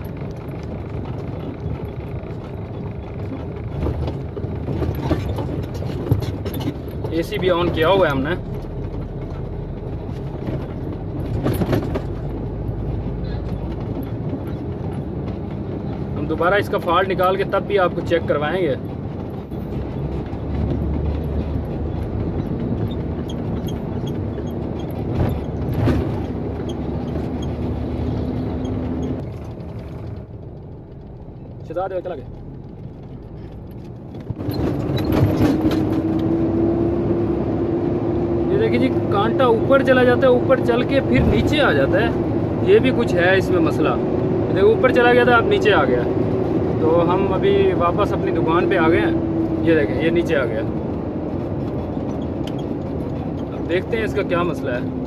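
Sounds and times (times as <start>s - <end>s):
clunks: 0.0s - 36.4s
truck diesel engine rumble: 0.0s - 55.0s.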